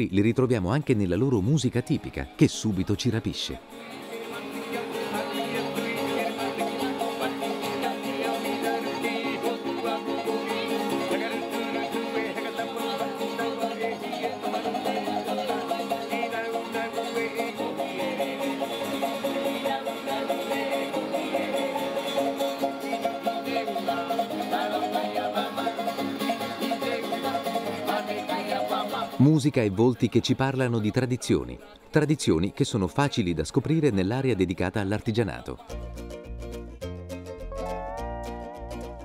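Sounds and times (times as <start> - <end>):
person singing: 3.4 - 29.5, 37.4 - 39.0
strummed acoustic guitar: 3.6 - 29.2, 35.6 - 39.0.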